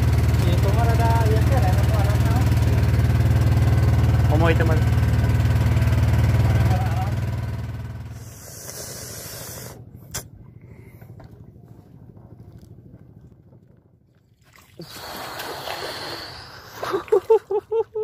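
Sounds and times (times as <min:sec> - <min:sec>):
boat motor humming: 0:00.0 - 0:12.4.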